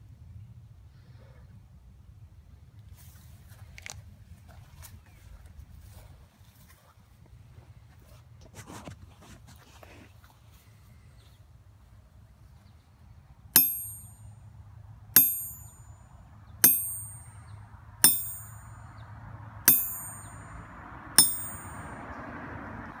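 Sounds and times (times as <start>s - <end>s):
metal object pinging on anvil: 13.6s - 14.2s, 15.2s - 16.0s, 16.6s - 18.8s, 19.7s - 20.6s, 21.2s - 22.0s.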